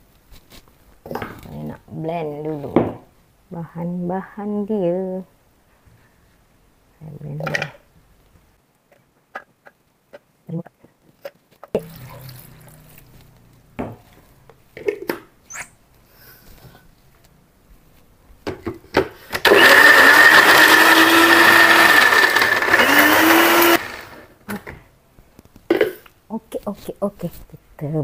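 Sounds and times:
electric blender grinding: 19.4s - 24.3s.

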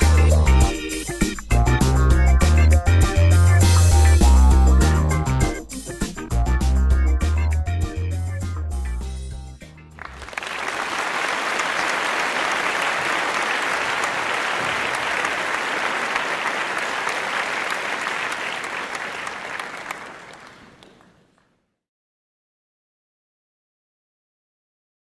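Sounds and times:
music: 0.0s - 10.4s
audience applauding: 10.0s - 21.4s.

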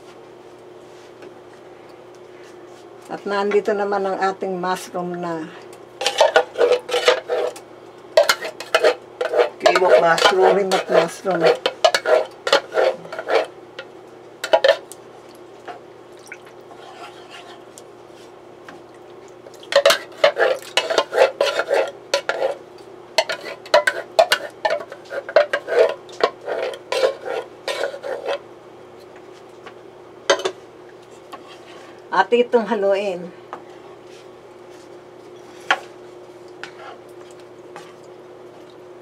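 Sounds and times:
faint steady hum: 0.0s - 39.0s
wooden spatula scraping a pan: 6.0s - 7.6s, 8.2s - 13.5s, 16.7s - 18.4s, 19.8s - 22.6s, 23.2s - 28.4s, 31.1s - 32.0s, 36.6s - 37.0s.

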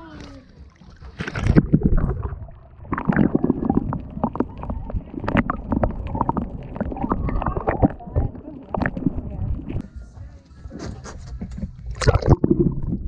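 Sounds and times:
bubbly gurgles: 0.0s - 9.8s, 11.9s - 13.0s
low rumbling underwater movement: 0.0s - 10.4s, 11.3s - 13.0s
underwater clicks: 0.7s - 9.8s, 11.5s - 12.8s.

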